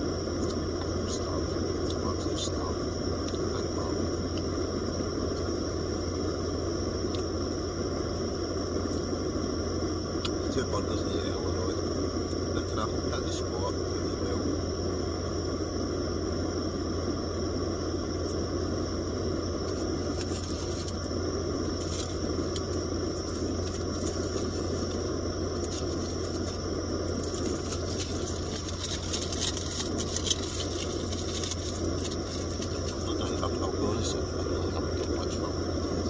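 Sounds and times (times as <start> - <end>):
engine-like drone: 0.0 - 36.0
aluminium foil crinkling: 19.7 - 21.0, 21.8 - 33.4.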